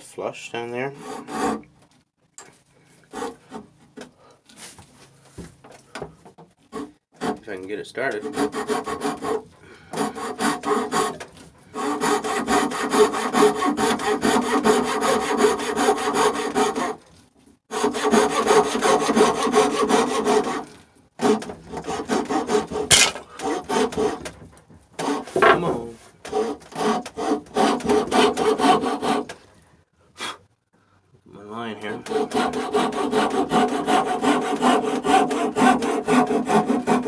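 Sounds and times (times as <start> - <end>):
hand saw rasping through wood: 0.9 - 1.7, 3.0 - 3.8, 6.7 - 17.1, 17.7 - 29.4, 31.8 - 37.0.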